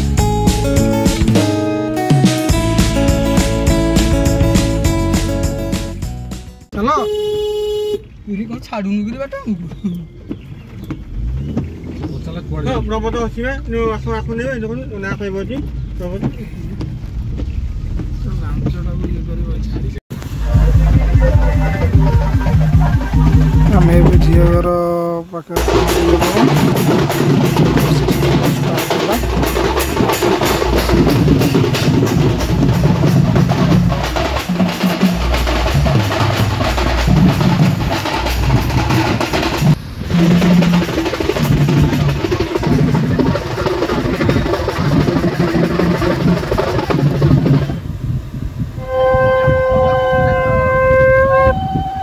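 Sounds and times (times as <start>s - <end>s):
drum band playing fast rhythm: 0.0s - 7.2s, 18.6s - 25.0s, 25.6s - 47.9s
wind instrument melody: 20.2s - 24.6s, 48.7s - 52.0s.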